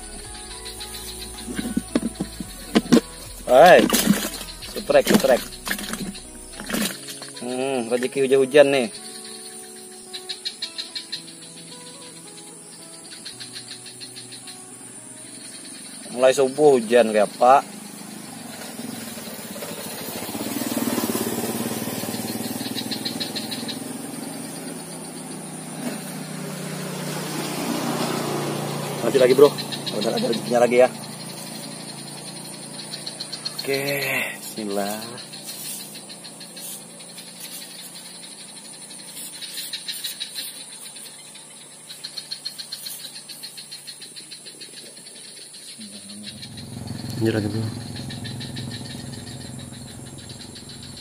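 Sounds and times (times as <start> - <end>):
high-pitched whine: 0.0 - 38.4, 45.8 - 51.0
insects trilling: 0.0 - 51.0
vehicle engine running: 0.0 - 51.0
rapid high ticks: 0.3 - 7.4, 17.1 - 26.3, 27.2 - 51.0.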